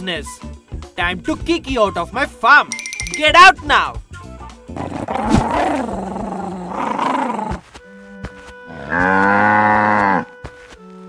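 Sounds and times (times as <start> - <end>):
light background music: 0.0 - 6.6, 7.6 - 11.0
cow mooing: 8.7 - 10.3.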